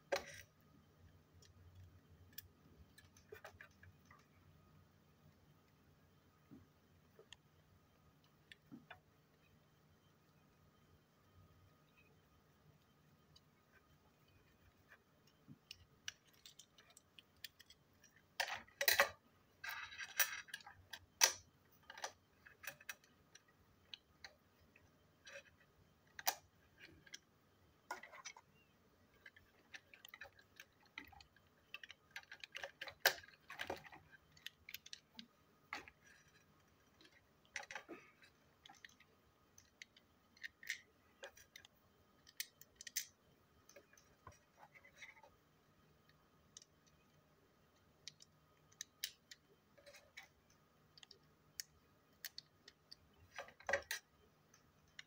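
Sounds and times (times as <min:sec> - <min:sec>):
plastic toy parts clicking: 0:15.3 - 0:45.2, 0:46.0 - 0:47.0, 0:47.7 - 0:55.0.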